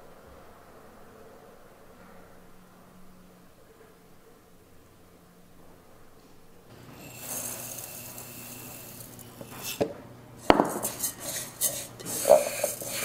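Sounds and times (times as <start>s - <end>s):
rice grains pouring into metal pot: 6.8s - 13.0s.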